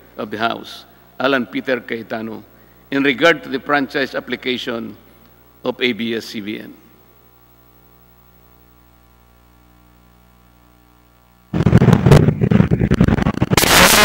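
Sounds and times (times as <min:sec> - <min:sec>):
low electrical hum: 0:00.0 - 0:14.0
crackling wind-like buffeting: 0:11.6 - 0:13.6.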